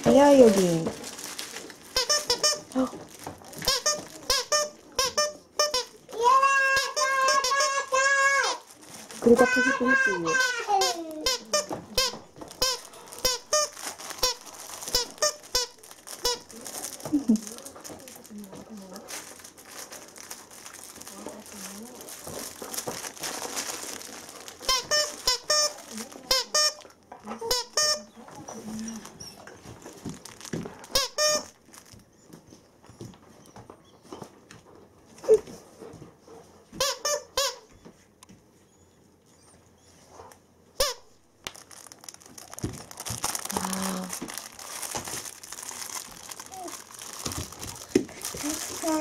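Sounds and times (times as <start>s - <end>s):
toy crinkly rustling: 0.0s - 32.6s, 40.8s - 49.0s
dog toy squeaker squeaking: 1.9s - 2.7s, 3.6s - 8.6s, 9.4s - 16.5s, 24.6s - 26.8s, 27.4s - 28.6s, 30.9s - 31.6s, 36.8s - 37.7s, 40.8s - 41.1s.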